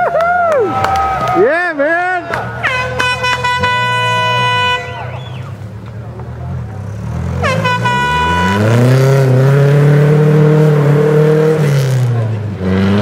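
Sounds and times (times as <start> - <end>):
rally car engine revving: 2.5 - 13.0
air horn blasts: 2.6 - 5.5, 7.4 - 9.3.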